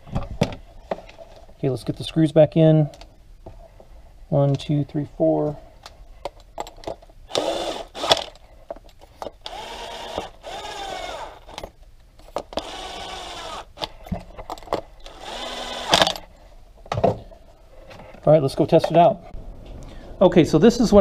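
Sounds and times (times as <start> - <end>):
screwdriver grinding screws: 7.3 - 8.4, 9.3 - 11.8, 12.4 - 14.0, 15.0 - 16.3.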